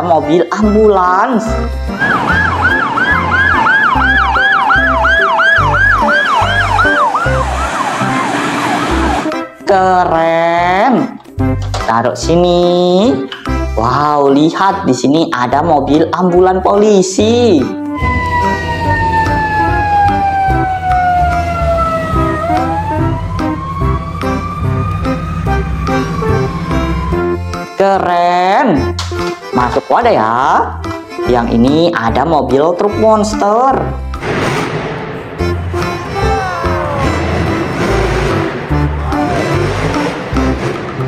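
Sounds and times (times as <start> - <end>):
background music with low beat: 0.0 - 15.0, 15.6 - 41.0
emergency siren yelping: 1.9 - 9.4, 17.9 - 27.7, 35.7 - 40.2.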